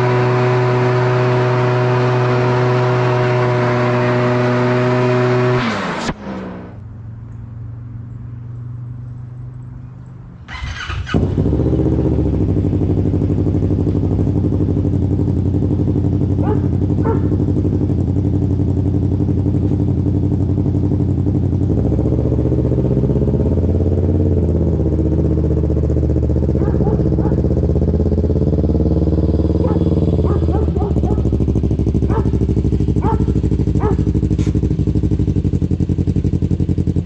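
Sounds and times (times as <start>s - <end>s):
engine idling loudly: 10.6s - 37.0s.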